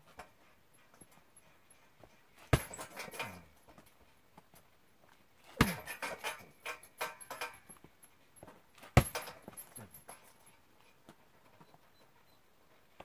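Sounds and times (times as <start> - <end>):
metal frame rattling: 1.7 - 3.8, 5.4 - 7.8, 8.8 - 10.5
kicks thudding into punching bag: 2.5 - 3.0, 5.6 - 6.0, 9.0 - 9.4.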